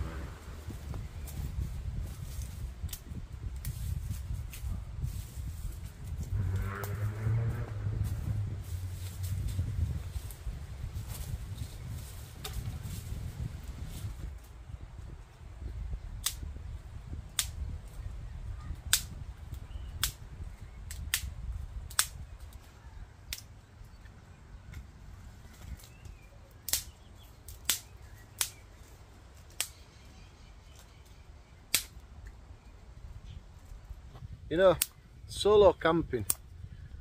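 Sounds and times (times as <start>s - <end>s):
low rumble: 0.0s - 14.3s
dry twigs snapping: 0.9s - 14.5s, 16.2s - 18.0s, 18.8s - 24.9s, 25.5s - 29.8s, 30.7s - 32.7s, 34.7s - 35.0s, 36.3s - 36.5s.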